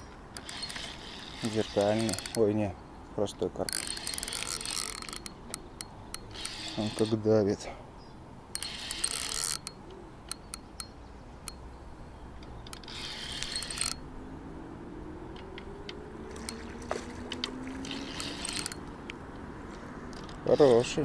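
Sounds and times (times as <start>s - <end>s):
reel clicks: 0.0s - 2.7s, 3.3s - 7.4s, 8.5s - 11.6s, 12.3s - 14.1s, 15.3s - 19.5s, 20.1s - 21.0s
spinning reel buzzing: 0.4s - 2.6s, 3.7s - 5.4s, 6.1s - 7.3s, 8.6s - 10.5s, 12.8s - 14.0s, 17.8s - 18.9s.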